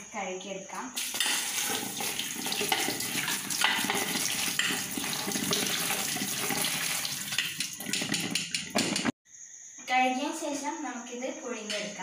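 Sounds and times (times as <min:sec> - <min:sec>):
tap water running: 0:01.0 - 0:09.1.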